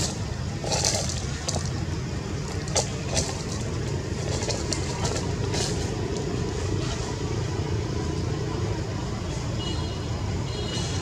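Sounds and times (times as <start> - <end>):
low background rumble: 0.0 - 10.6.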